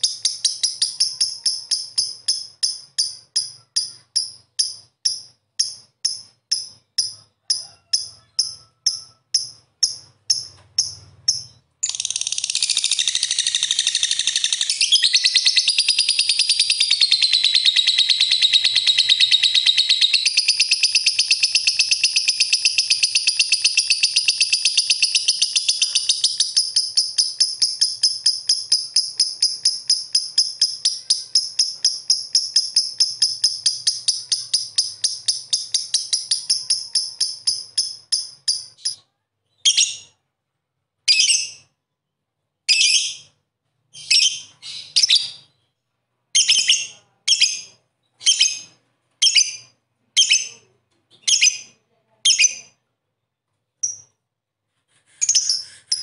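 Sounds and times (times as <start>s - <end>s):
lovebird chattering trill: 0.0s - 39.0s.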